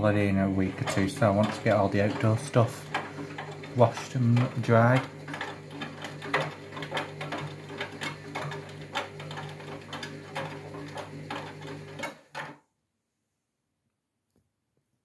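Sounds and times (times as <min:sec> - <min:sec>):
washing machine motor hum: 0:00.0 - 0:12.6
clicks and knocks against drum: 0:00.5 - 0:12.6.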